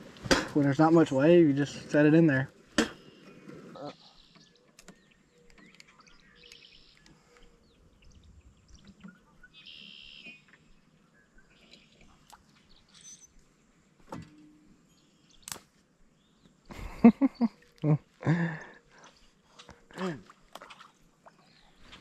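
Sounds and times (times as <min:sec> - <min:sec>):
birds chirping: 0:00.6 - 0:20.4, 0:21.1 - 0:22.0
buzzy bird trills: 0:09.0 - 0:10.5.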